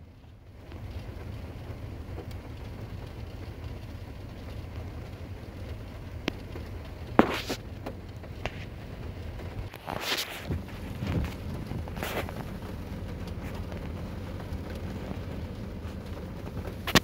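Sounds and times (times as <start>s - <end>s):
low rumble: 0.0s - 17.0s
tyres on wet road: 0.0s - 17.0s
sharp tap: 7.2s - 7.6s.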